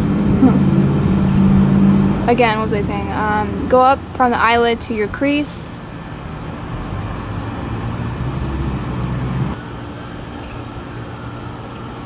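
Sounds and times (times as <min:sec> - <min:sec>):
car passing: 0:00.0 - 0:09.6
outdoor background rumble: 0:00.0 - 0:12.0.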